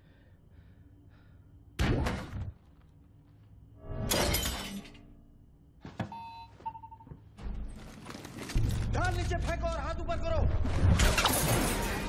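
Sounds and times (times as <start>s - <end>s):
glass shattering: 4.1s - 5.0s, 11.0s - 12.0s.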